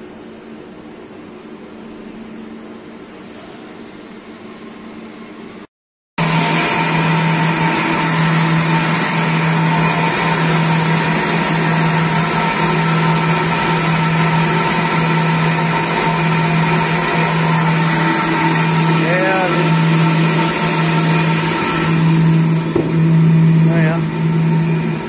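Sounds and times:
coolant hiss: 6.2s - 25.0s
lathe spindle and drive hum: 6.2s - 25.0s.

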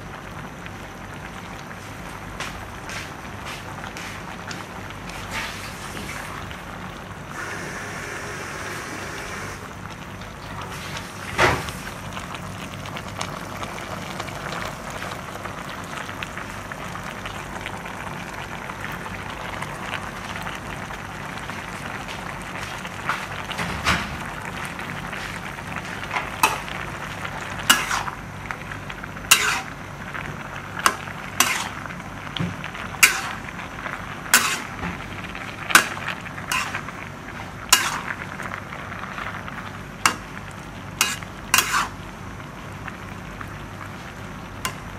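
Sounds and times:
meat and vegetables sizzling in a wok: 0.0s - 44.9s
metal ladle scraping a pan: 27.7s - 28.1s, 29.3s - 29.7s, 30.9s - 31.8s, 33.0s - 33.4s, 34.3s - 34.8s, 35.7s - 36.8s, 37.7s - 38.1s, 41.0s - 42.0s.

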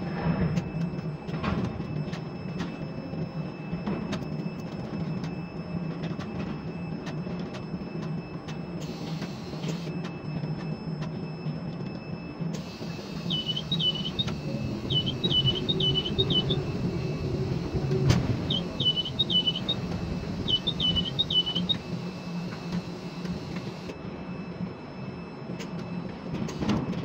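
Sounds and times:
crane machinery humming: 7.6s - 27.0s.

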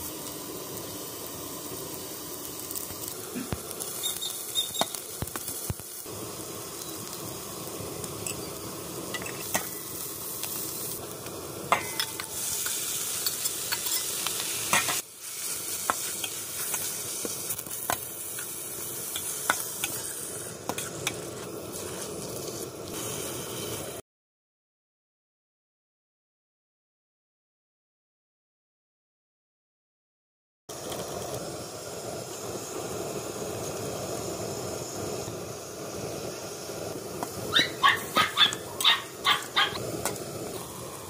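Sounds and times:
food sizzling in a pan: 0.0s - 24.0s, 30.7s - 41.0s
metal spatula scraping a pan: 11.7s - 15.0s.

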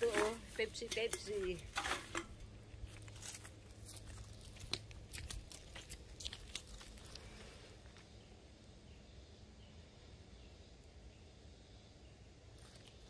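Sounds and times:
plastic bag crinkling: 0.0s - 7.7s.

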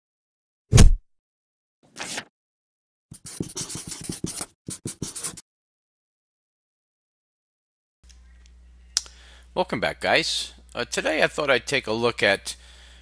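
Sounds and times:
short swish: 0.7s - 1.0s
marker scratching on paper: 3.1s - 5.4s.

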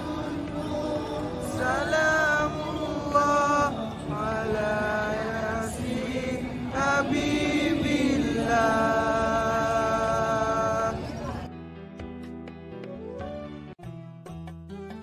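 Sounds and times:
person chanting a religious song: 0.0s - 11.4s.

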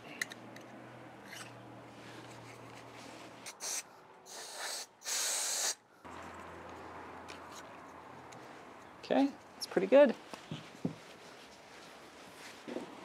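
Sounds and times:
aerosol spray can hissing: 3.5s - 5.8s.

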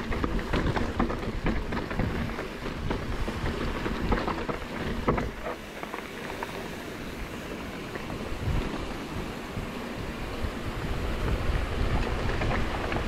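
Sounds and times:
bike knocks: 0.0s - 6.5s
wind on microphone: 0.0s - 13.0s.

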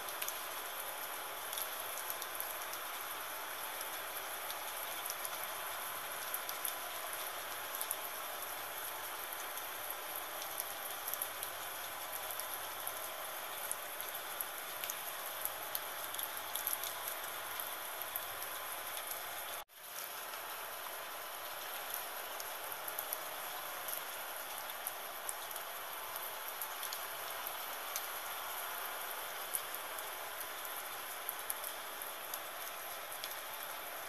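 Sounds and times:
raindrop ticks: 0.0s - 3.0s, 3.7s - 5.5s, 6.2s - 8.1s, 14.7s - 18.1s, 23.9s - 28.1s, 31.4s - 33.8s
rain hiss: 0.0s - 34.0s.

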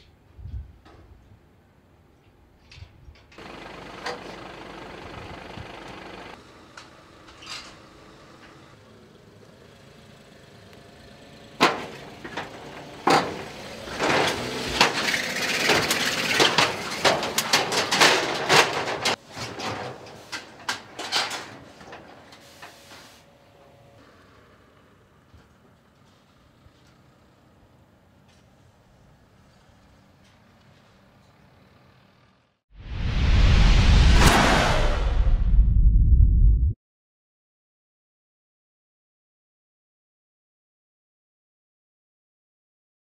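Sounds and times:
car engine: 3.4s - 19.2s
metallic clanks and rattles: 11.6s - 22.4s.

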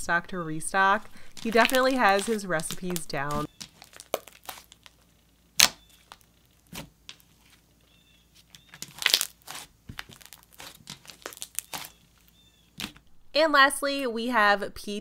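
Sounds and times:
slime popping and clicking: 5.6s - 6.8s.

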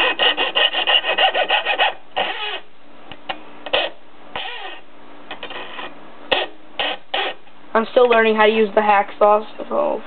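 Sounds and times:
hacksaw cutting metal: 0.0s - 2.6s.

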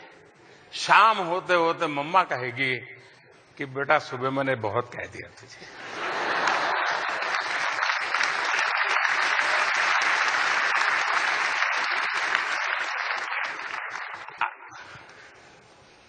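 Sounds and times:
audience applauding: 5.9s - 15.1s.

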